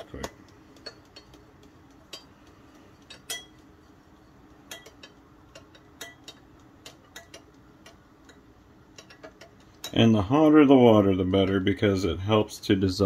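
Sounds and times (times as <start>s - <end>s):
spoon clinking against glass: 3.1s - 3.6s.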